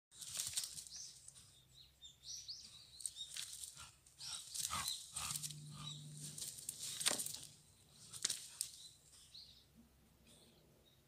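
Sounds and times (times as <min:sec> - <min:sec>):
rustling in dry brush: 0:00.1 - 0:01.4, 0:04.4 - 0:08.9.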